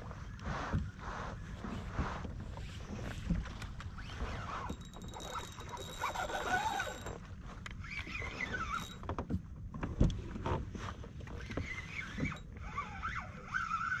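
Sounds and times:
wavering high squeaks: 4.0 - 9.0, 11.6 - 14.0.

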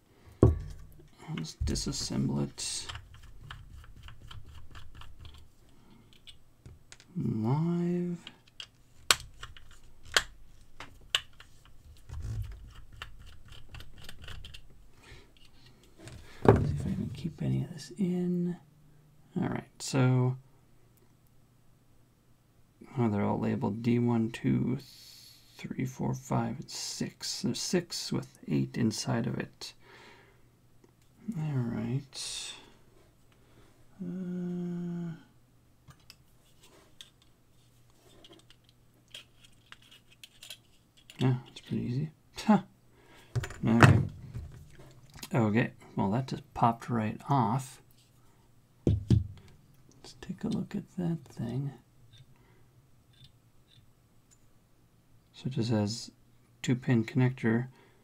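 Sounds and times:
dull handling bump: 0.4 - 1.8
person humming: 34.0 - 35.3.

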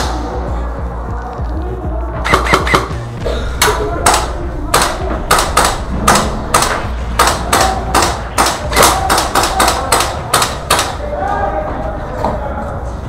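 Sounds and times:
airsoft rifle shots: 2.2 - 3.0, 3.6 - 11.0.

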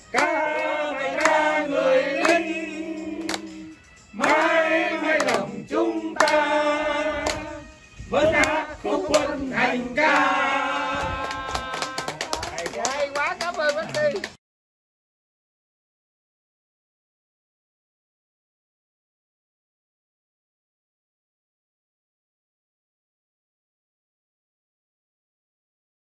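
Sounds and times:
hands clapping in time: 0.1 - 2.5, 3.1 - 5.6, 6.2 - 6.5, 7.2 - 7.5, 8.4 - 9.4, 10.0 - 14.4
two men singing together: 0.1 - 11.7.

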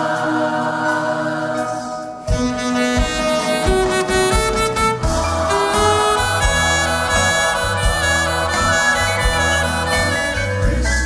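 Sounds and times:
held chord: 1.8 - 11.0
drums and bass beat: 2.3 - 11.0
saxophone playing tune: 2.3 - 11.0.

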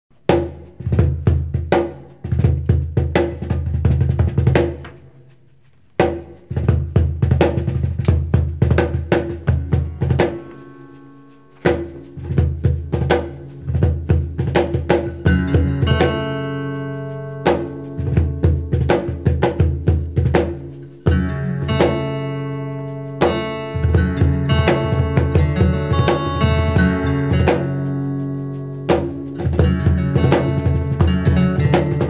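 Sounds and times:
cajon thuds and slaps: 0.3 - 5.0, 6.0 - 10.5, 23.2 - 27.8, 28.9 - 32.0
acoustic guitar notes: 8.8 - 32.0.

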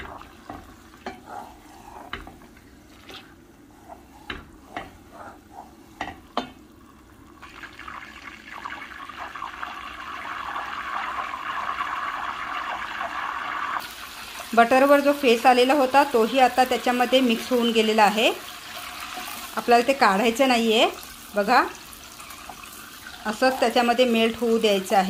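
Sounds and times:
wooden spatula scraping pot: 0.0 - 6.6, 22.4 - 24.6
butter bubbling and sizzling: 0.0 - 25.0.

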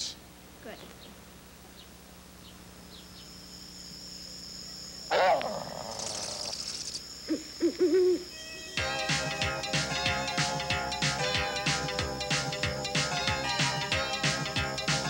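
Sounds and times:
crickets chirring: 0.0 - 15.0
owl hooting: 1.0 - 8.8
loud wavering animal call: 4.8 - 8.8.

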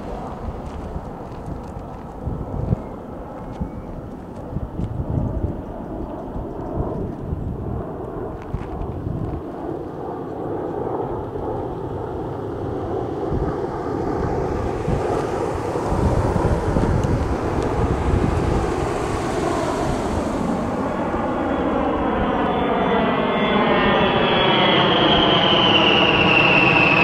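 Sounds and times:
jet aircraft engine rumbling: 0.0 - 27.0
phasing whine rising in pitch: 12.5 - 27.0.

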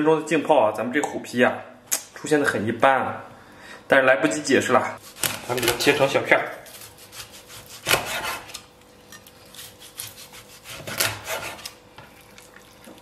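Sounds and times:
cleaver cutting crackling pork skin: 5.0 - 12.4.

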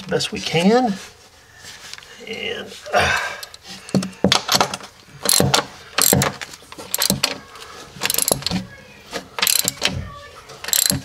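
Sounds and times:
ratchet wrench clicking: 5.2 - 6.3, 6.9 - 7.4, 8.0 - 8.5, 9.4 - 9.9, 10.7 - 11.0.

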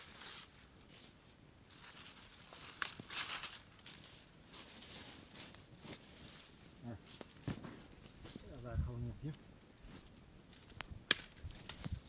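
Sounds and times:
dry branches rustling: 0.0 - 12.0
branch cracking: 1.7 - 6.4, 9.3 - 12.0.

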